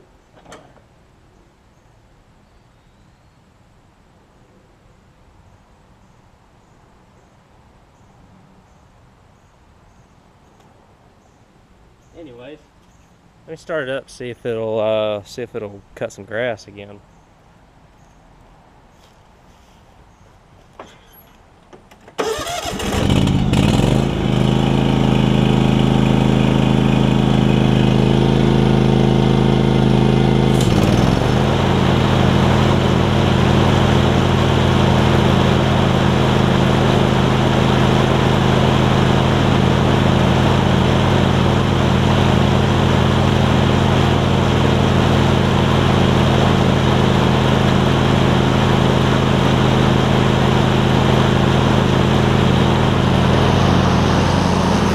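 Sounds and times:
riding mower engine running: 0.2 - 0.9, 20.8 - 54.9
mower deck blades whirring: 0.3 - 0.9, 20.8 - 54.9.

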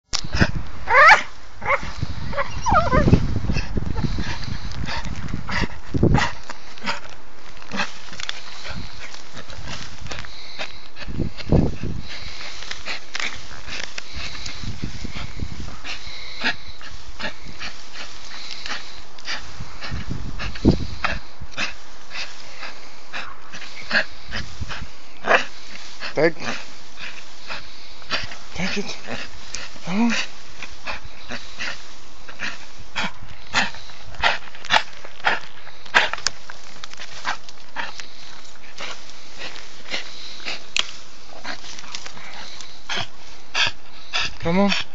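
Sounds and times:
twigs crackling and rustling: 0.0 - 44.9
dog whining: 0.9 - 3.2.

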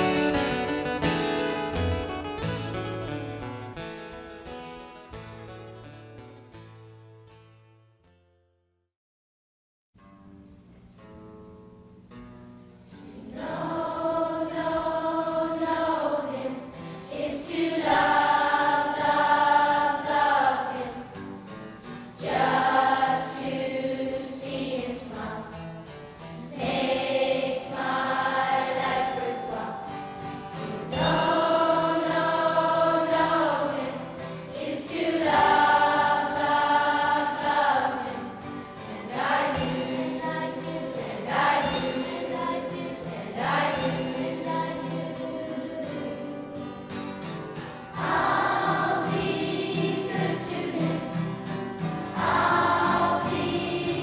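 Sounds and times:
choir singing long phrases: 13.0 - 21.3, 22.0 - 25.7, 26.5 - 47.0, 47.9 - 54.0.

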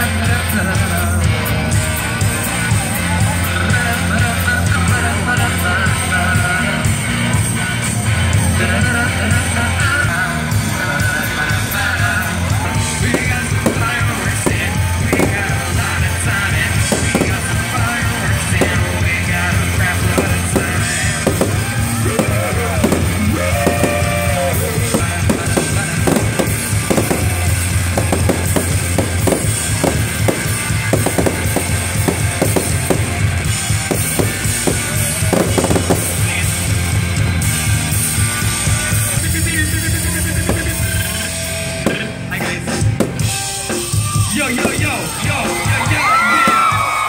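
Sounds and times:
loud music with drum beat: 0.0 - 47.0
fireworks bangs and crackle: 11.0 - 47.0.

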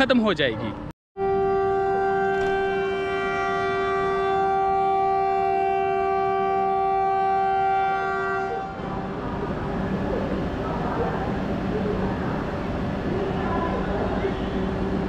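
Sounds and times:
train horn blast: 1.2 - 9.1.

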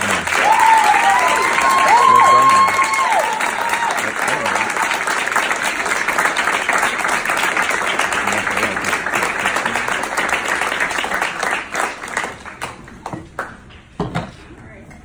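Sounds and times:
crowd applauding: 0.0 - 13.6.

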